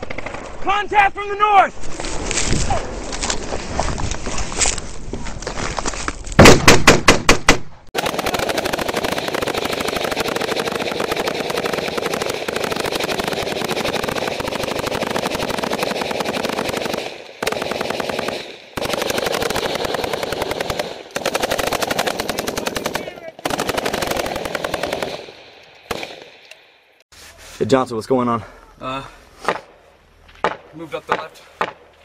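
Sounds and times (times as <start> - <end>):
loud close gunshots: 6.4 - 26.3
machine-gun bursts: 8.0 - 26.2.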